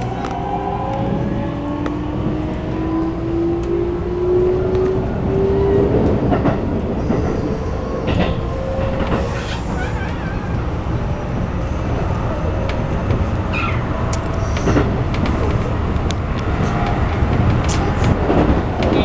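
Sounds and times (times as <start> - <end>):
train wheels rumbling: 0.0 - 19.0
rail-joint clicks: 5.9 - 10.3, 12.6 - 19.0.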